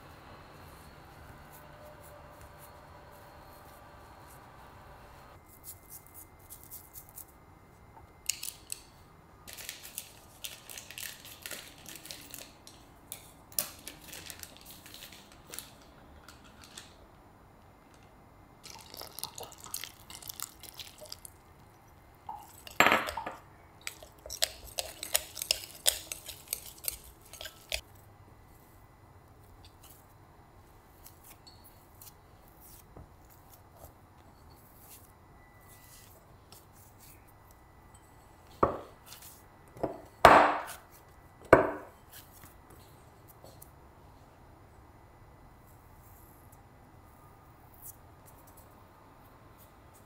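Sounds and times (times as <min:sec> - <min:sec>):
spatula clicking and scraping bowl: 0:23.8 - 0:27.8.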